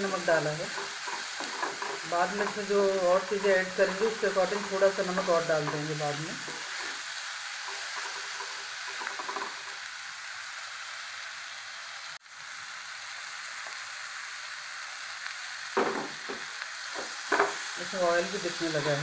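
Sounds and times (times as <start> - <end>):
vegetables sizzling in pan: 0.0 - 19.0
wooden spatula scraping pan: 0.6 - 9.6.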